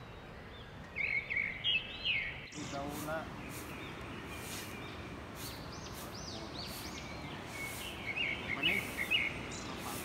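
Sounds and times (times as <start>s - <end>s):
birds chirping: 0.0s - 10.0s
outdoor hiss: 2.5s - 10.0s.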